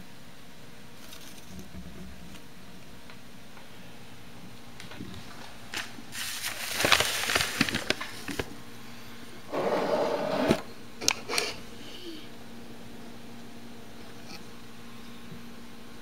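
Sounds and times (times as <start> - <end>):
rustling in paper bedding: 5.1 - 8.6.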